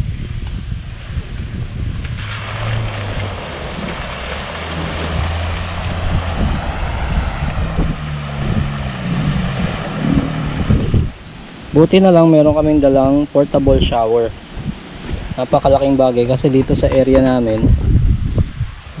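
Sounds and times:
wind buffeting microphone: 0.0 - 19.0
motorboat engine hum: 0.8 - 13.5
water hissing: 2.2 - 12.4.

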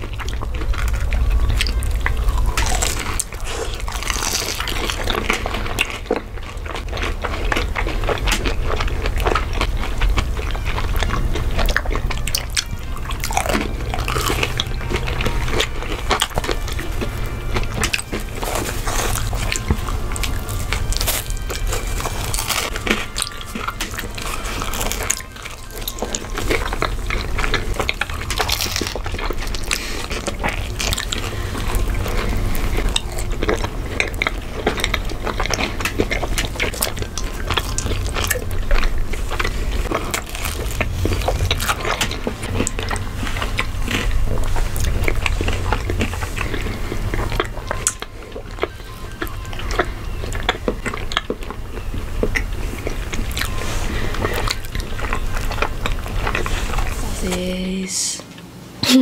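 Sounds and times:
chewing and wet mouth clicks: 0.0 - 57.0.

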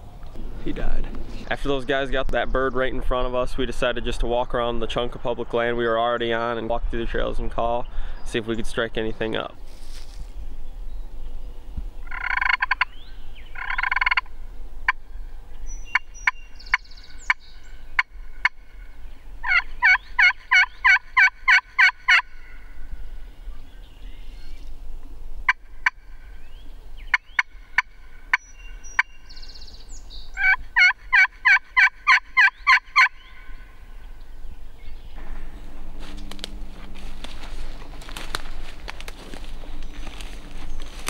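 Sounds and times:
turkey call yelps and clucks: 12.0 - 14.3, 18.0 - 18.6, 19.4 - 22.7, 25.5 - 26.2, 27.1 - 29.3, 30.4 - 33.7.

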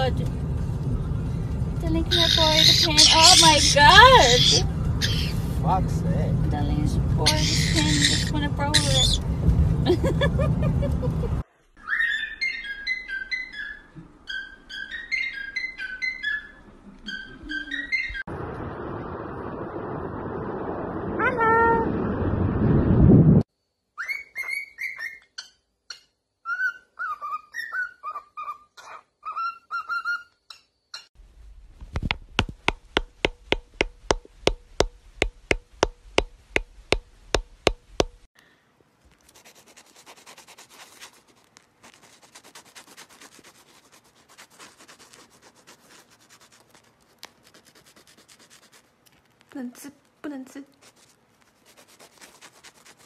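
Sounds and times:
parrot whistling: 2.1 - 5.4, 7.3 - 9.2, 11.8 - 18.2, 24.0 - 25.3.

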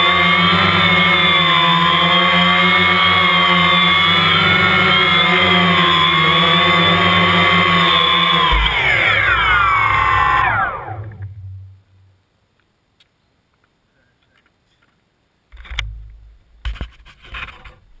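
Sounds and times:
drone propellers whining down: 0.0 - 12.2.

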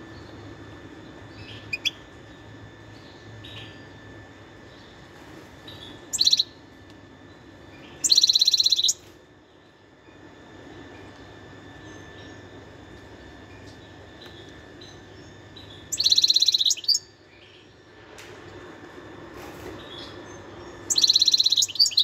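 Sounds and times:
goldfinch singing: 1.3 - 2.1, 5.7 - 6.6, 7.7 - 9.0, 14.3 - 17.7, 19.9 - 22.0.

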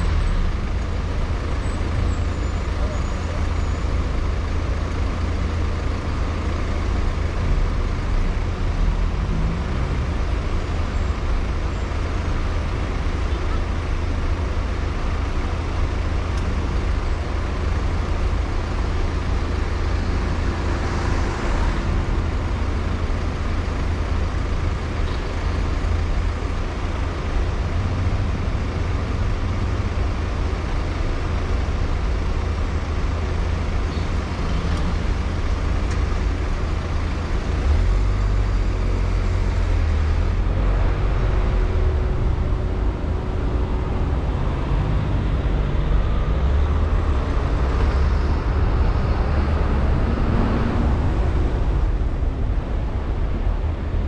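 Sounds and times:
car engine and tyre rumble: 0.0 - 54.0
traffic noise: 0.0 - 54.0.

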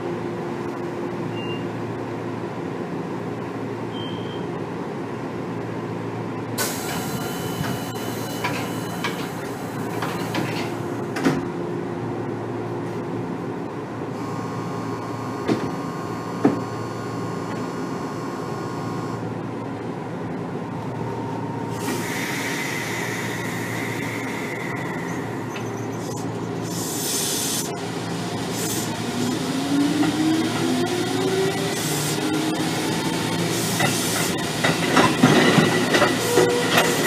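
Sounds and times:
train car low hum: 0.0 - 37.0
air hiss burst: 21.8 - 25.0.

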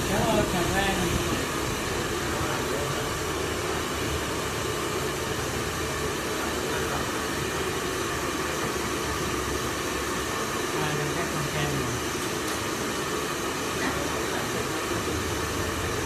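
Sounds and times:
hair dryers blowing: 0.0 - 16.0.

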